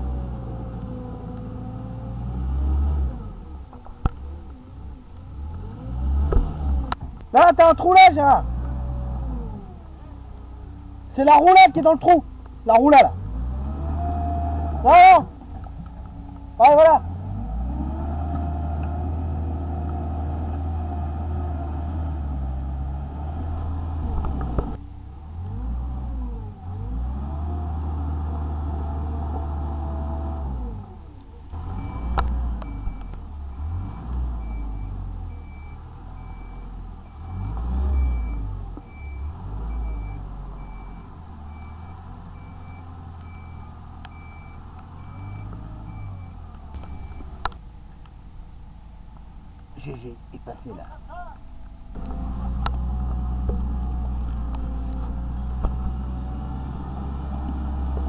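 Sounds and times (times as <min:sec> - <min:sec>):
excavator diesel engine: 0:00.0 - 0:58.0
reversing alarm beeping: 0:31.7 - 0:47.4.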